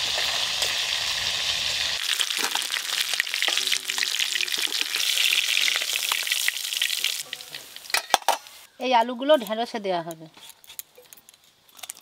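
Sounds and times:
fish sizzling in hot oil: 0.0 - 8.7.

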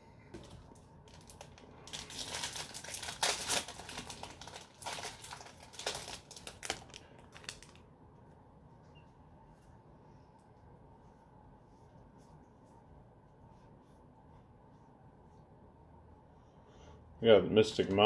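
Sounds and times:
foil wrapper crinkling: 0.4 - 7.9.

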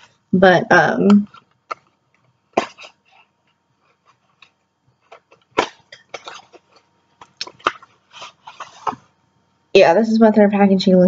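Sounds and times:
box and bottle being handled: 3.9 - 9.1.

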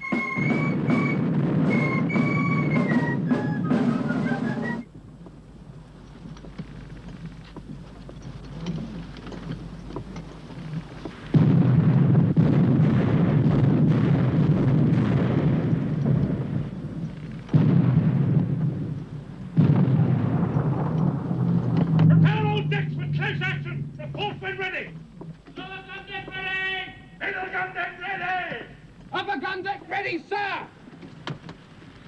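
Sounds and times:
cannon fire rumbling: 0.4 - 4.8, 11.2 - 25.2.

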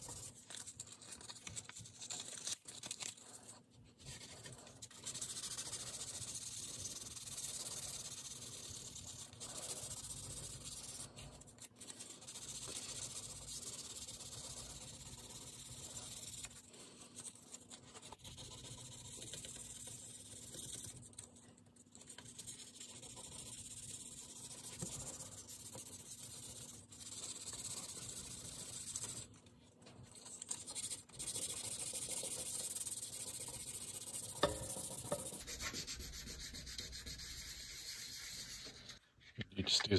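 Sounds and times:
sandpaper rasping on wood: 30.5 - 39.0.

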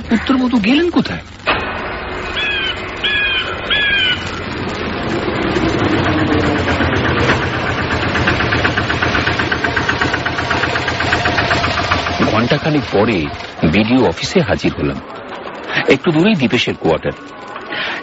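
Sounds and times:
engine running with even knocking: 3.5 - 15.0.

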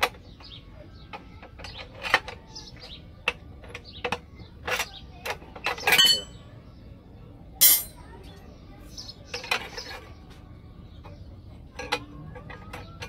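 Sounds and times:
metallic clanks of wire bending jig: 5.7 - 6.4, 7.6 - 8.0.

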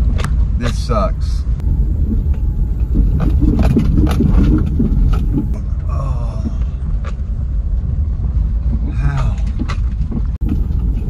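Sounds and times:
car rumbling on dirt track: 0.0 - 11.0
knocks and rattles: 2.0 - 5.6, 8.6 - 11.0.

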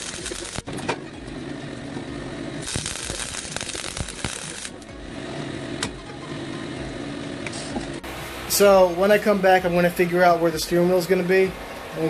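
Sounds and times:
welder crackling: 0.0 - 5.1.

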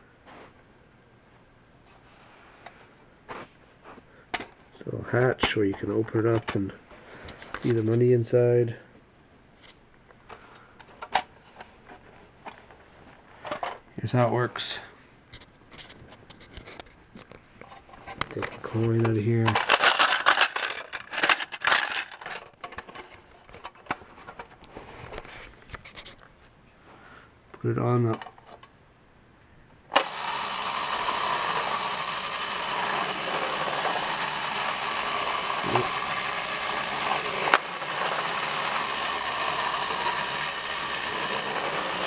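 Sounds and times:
clockwork mechanism whirring: 19.5 - 22.4, 29.9 - 42.0
coin clinking: 19.5 - 22.4, 30.0 - 42.0.

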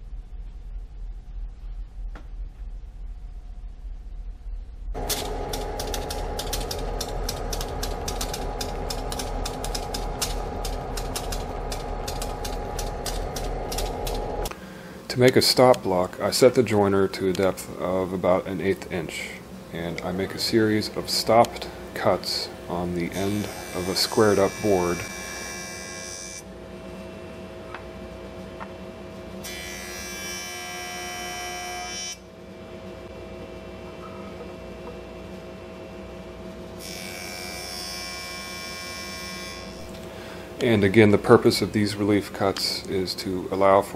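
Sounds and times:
diesel locomotive drone: 0.0 - 15.1
sharp rapid clicks: 5.0 - 14.5
jointer humming and whining: 5.0 - 15.0, 18.8 - 27.9, 28.6 - 35.0, 35.9 - 40.9.

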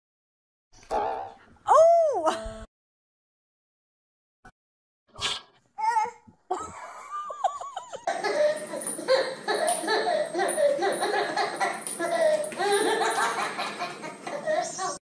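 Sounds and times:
high-pitched baby vocal sounds: 5.8 - 6.2
baby giggling: 7.4 - 15.0.

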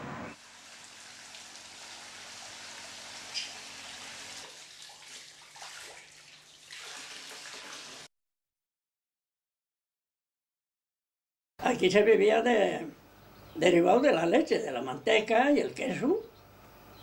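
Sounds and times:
liquid splashing and pouring: 0.4 - 8.1.

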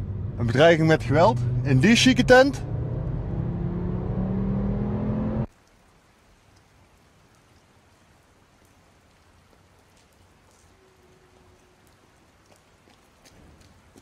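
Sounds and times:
car engine and road noise: 0.0 - 5.5
light water drips: 5.5 - 14.0
rain patter on paving: 5.5 - 14.0.

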